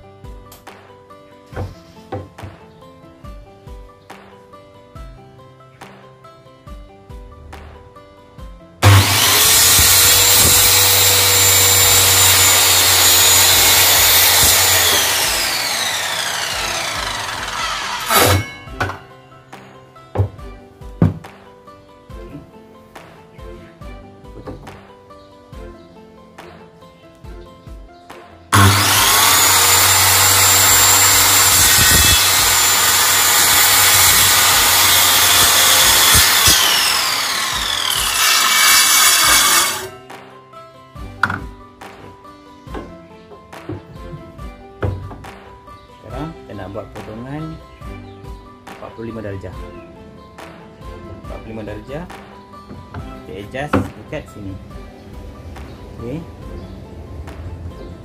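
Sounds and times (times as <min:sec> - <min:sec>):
circular saw cutting wood: 0:08.8 - 0:19.1, 0:28.5 - 0:40.0.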